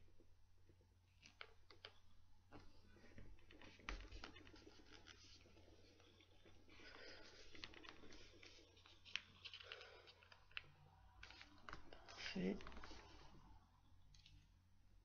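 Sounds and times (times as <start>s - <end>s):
paper rustling and scratching: 2.6s - 13.5s.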